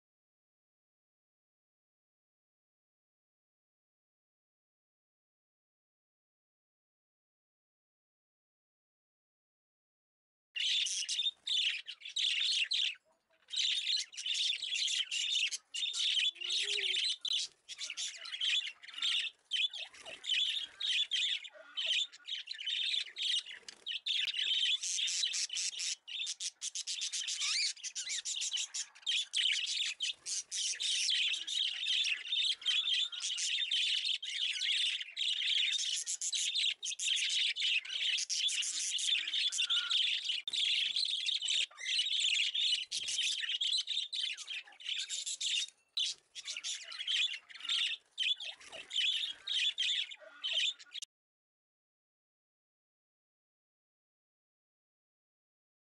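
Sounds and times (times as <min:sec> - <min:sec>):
budgerigar chattering: 0:24.2 - 0:45.6, 0:46.4 - 0:51.0.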